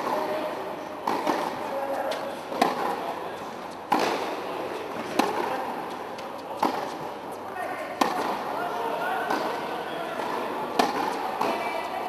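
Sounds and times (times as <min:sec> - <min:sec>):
tennis ball pops echoing: 0:01.0 - 0:01.6, 0:02.5 - 0:03.0, 0:10.2 - 0:11.6.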